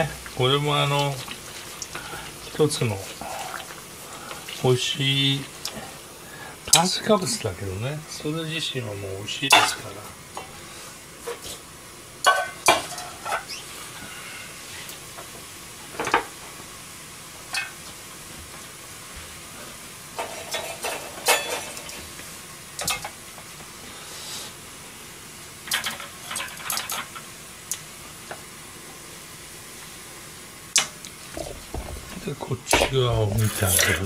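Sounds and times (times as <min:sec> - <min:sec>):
water boiling with bubbling hiss: 0:00.0 - 0:34.0
utensils clicking against pan: 0:22.8 - 0:23.2, 0:25.7 - 0:27.8.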